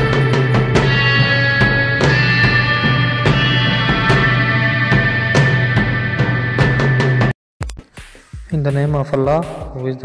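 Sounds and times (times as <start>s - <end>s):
sustained tones: 0.0s - 7.3s
drum beat: 0.0s - 10.0s.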